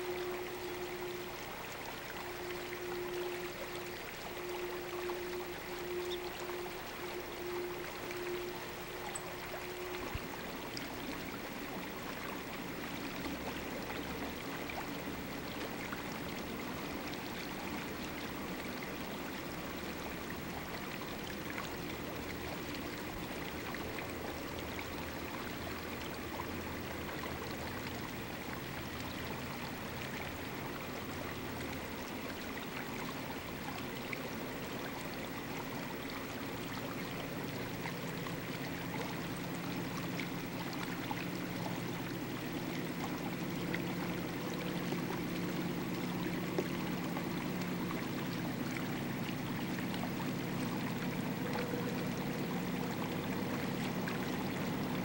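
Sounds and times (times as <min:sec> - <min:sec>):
distant locomotive engine drone: 0:00.0 - 0:55.0.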